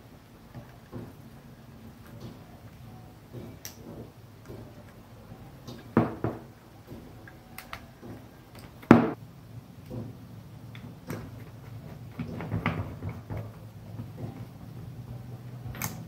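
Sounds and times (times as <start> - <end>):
wire rustling: 9.8 - 16.0.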